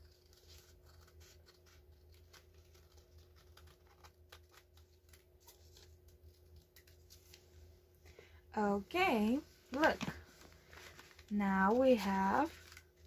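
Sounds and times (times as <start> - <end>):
scissors snipping paper: 0.0 - 7.2.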